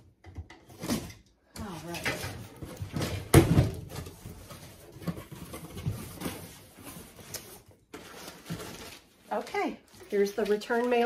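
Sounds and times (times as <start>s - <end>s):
cardboard rustling and handling: 0.6s - 11.0s.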